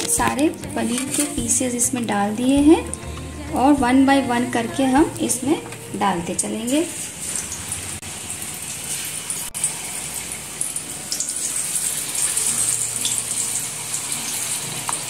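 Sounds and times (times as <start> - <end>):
deep-frying sizzle with crackles: 5.2 - 15.0.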